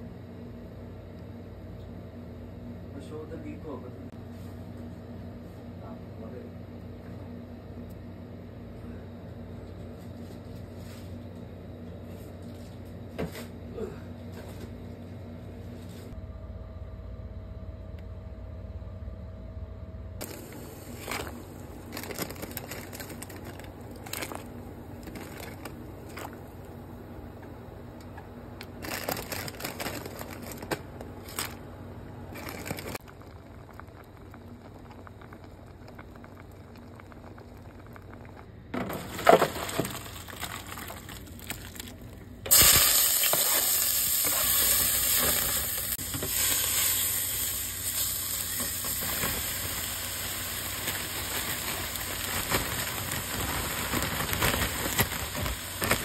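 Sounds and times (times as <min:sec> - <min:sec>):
water bubbling at the boil: 0:32.5 - 0:38.5
food sizzling in a pan: 0:42.5 - 0:56.0.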